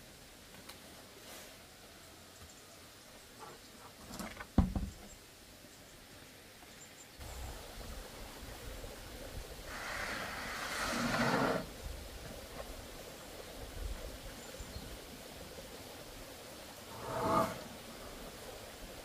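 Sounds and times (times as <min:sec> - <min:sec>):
roofing sheet knocking on wood: 0:04.6 - 0:05.0
metal sheet scraping: 0:16.9 - 0:17.8.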